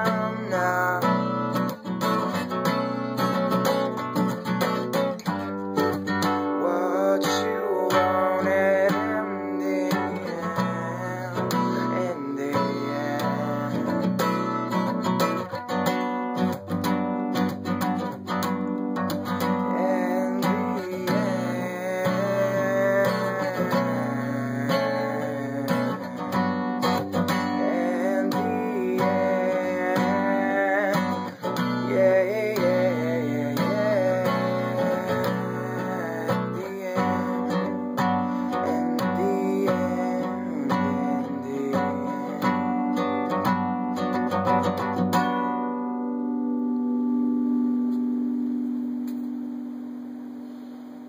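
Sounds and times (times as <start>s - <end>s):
man singing: 0.0s - 2.4s, 6.2s - 14.8s, 19.4s - 44.9s
acoustic guitar strumming: 0.0s - 51.0s.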